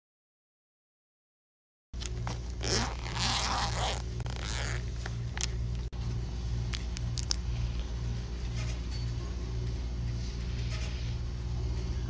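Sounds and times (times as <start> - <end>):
zipper opening: 2.2 - 5.5.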